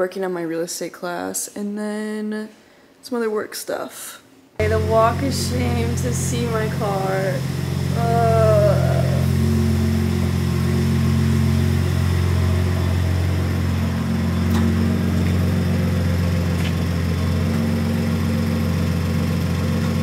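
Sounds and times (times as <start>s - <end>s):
machine droning: 4.6s - 20.0s.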